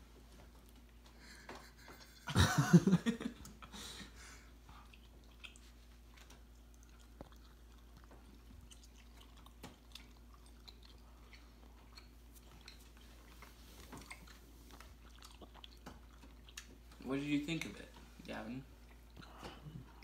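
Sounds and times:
low room hum: 0:00.0 - 0:20.0
chewing candy: 0:04.4 - 0:17.1, 0:18.8 - 0:20.0
small clicks and smacks: 0:04.9 - 0:18.1.

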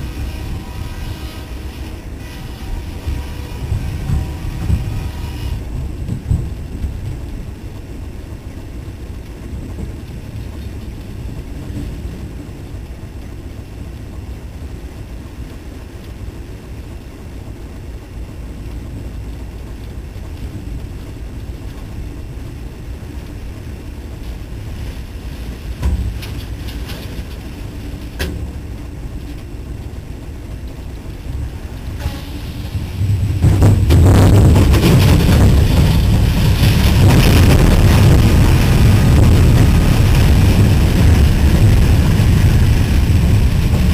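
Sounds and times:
freight train rumble: 0:00.0 - 0:43.9
wind buffeting microphone: 0:00.0 - 0:43.9.

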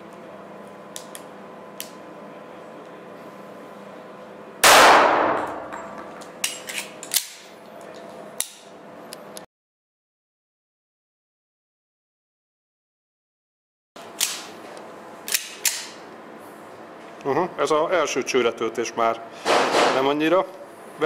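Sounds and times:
pistol shot echoing indoors: 0:04.6 - 0:05.9.

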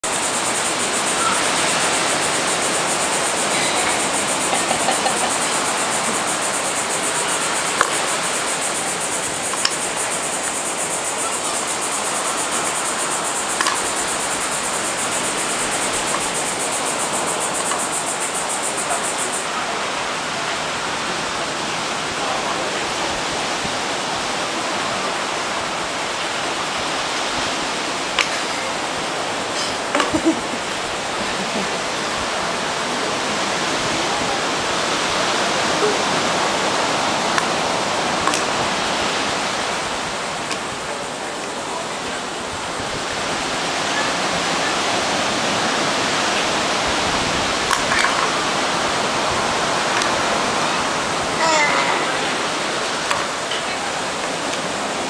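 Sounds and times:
steady rushing noise: 0:00.0 - 0:20.2
high hiss: 0:00.0 - 0:55.0.

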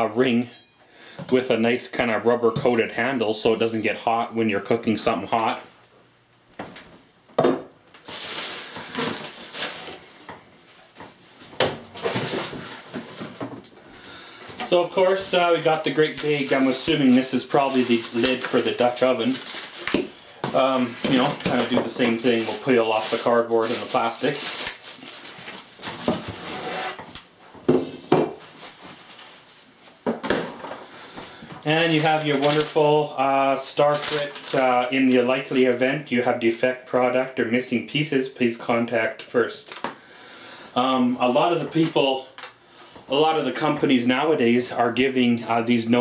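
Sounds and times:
plastic wrap crinkling: 0:07.9 - 0:11.0, 0:14.5 - 0:27.3, 0:28.4 - 0:30.0, 0:31.6 - 0:35.7
cardboard rustling: 0:08.0 - 0:13.7, 0:14.5 - 0:26.8, 0:31.6 - 0:33.0.

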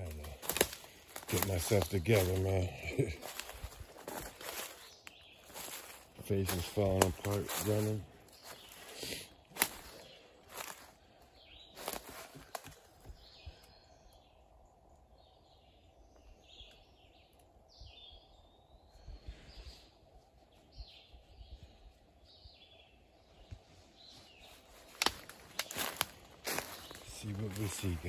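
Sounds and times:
crunching footsteps: 0:00.0 - 0:13.4, 0:23.5 - 0:28.0
bird chirping: 0:00.0 - 0:28.0.

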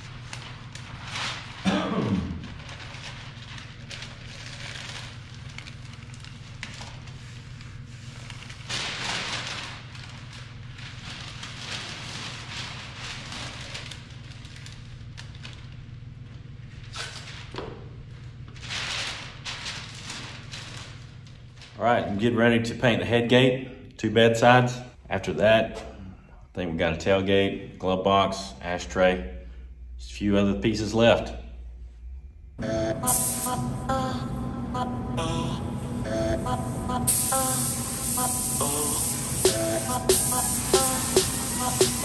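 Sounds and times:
paper crinkling and rustling: 0:00.0 - 0:01.7, 0:02.4 - 0:21.8
steady low hum: 0:00.0 - 0:42.0.

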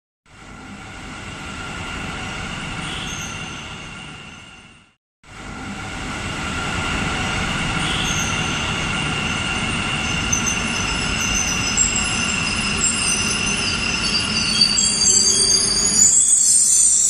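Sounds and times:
high-pitched train whines: 0:00.3 - 0:17.0
train rumble: 0:00.3 - 0:17.0
high squeals: 0:07.7 - 0:17.0.

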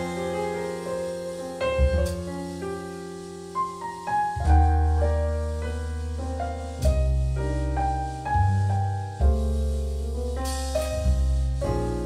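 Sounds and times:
deep sustained bass notes: 0:00.0 - 0:02.3
piano playing slow chords: 0:00.0 - 0:12.0.

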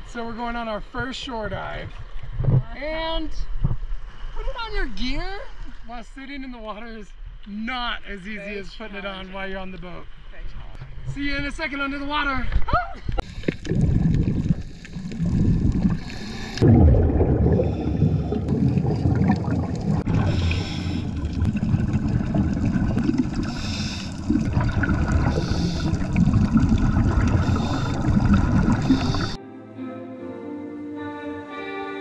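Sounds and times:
bubbling hiss: 0:13.2 - 0:29.4
water churning and rumbling: 0:13.2 - 0:29.4.

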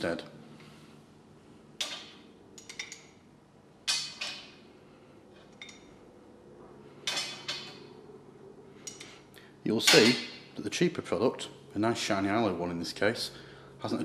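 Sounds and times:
wrench clinking on metal: 0:01.8 - 0:03.2, 0:07.0 - 0:07.8, 0:09.8 - 0:10.4.

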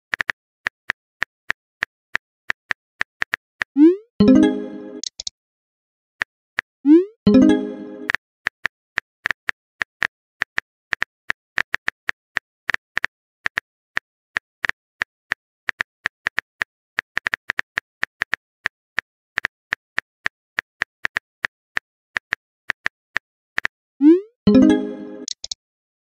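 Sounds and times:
message pop sound: 0:03.8 - 0:05.3, 0:06.9 - 0:08.2, 0:24.0 - 0:25.6
phone keyboard typing clicks: 0:05.0 - 0:05.3, 0:25.2 - 0:25.6.

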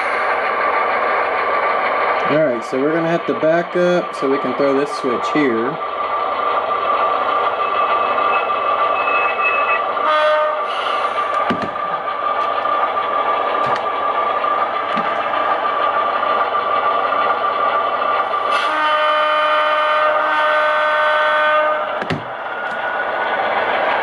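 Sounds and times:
model locomotive engine drone: 0:00.0 - 0:24.0
locomotive horn blast: 0:10.0 - 0:11.0, 0:18.5 - 0:22.0.

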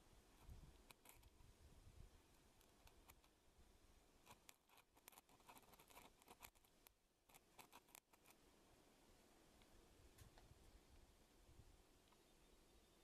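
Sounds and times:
faint small clicks and scraping: 0:00.4 - 0:01.4, 0:02.3 - 0:03.4, 0:04.2 - 0:08.4.

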